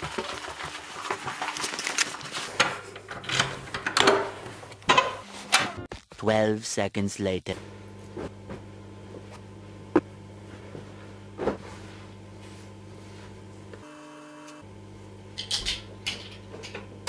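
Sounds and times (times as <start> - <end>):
low electrical hum: 7.2 - 17.0.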